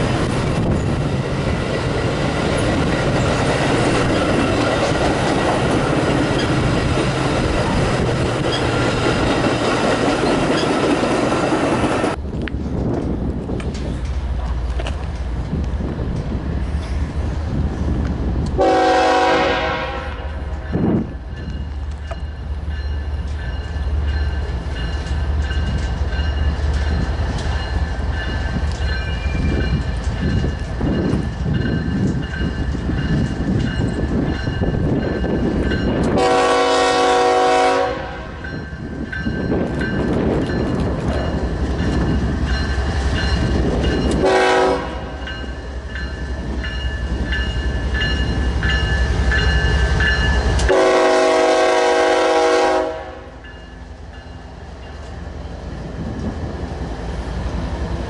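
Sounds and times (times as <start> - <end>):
diesel locomotive engine rumble: 0.0 - 58.0
train air horn blasts: 18.6 - 20.6, 36.1 - 38.4, 44.2 - 45.2, 50.7 - 53.4.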